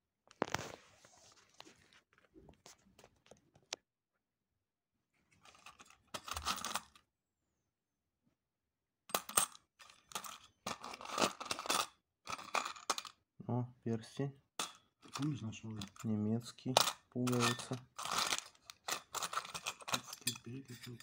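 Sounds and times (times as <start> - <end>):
coins clinking in a metal tin: 9.1 - 13.1, 14.6 - 21.0.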